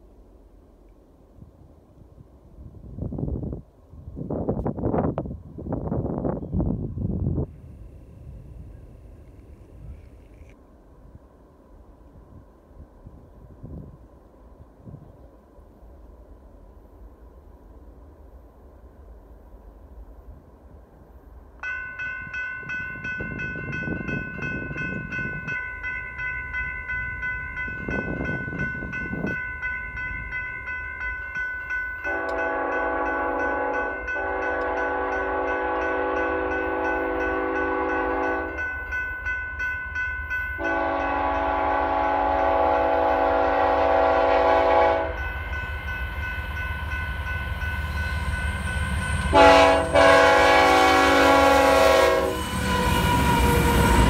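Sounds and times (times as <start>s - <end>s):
railroad crossing bell clanging: 21.6s - 54.0s
locomotive engines rumbling: 22.0s - 54.0s
locomotive air horn blasts: 32.1s - 38.6s, 40.6s - 45.2s, 49.1s - 54.0s.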